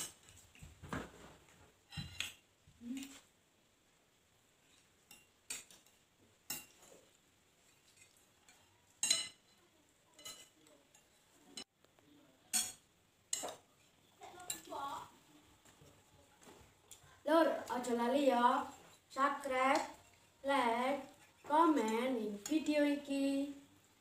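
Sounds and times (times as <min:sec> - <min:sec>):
cutlery clinking on ceramic plates: 0:01.9 - 0:02.4, 0:05.1 - 0:06.9, 0:07.7 - 0:11.7, 0:12.5 - 0:14.7.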